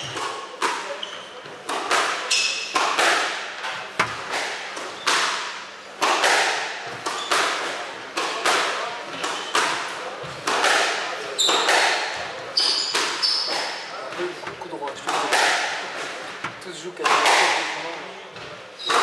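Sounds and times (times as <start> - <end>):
ball striking court walls: 0.0 - 17.8
rackets hitting squash ball: 0.0 - 19.0
shoes squeaking on wooden floor: 0.9 - 1.6, 6.9 - 7.5, 9.1 - 10.4, 11.3 - 11.8, 12.5 - 14.6.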